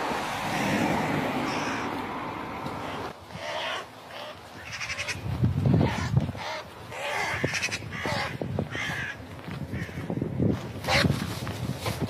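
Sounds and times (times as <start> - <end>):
crow cawing: 1.4 - 2.0, 3.4 - 5.2, 5.9 - 10.2.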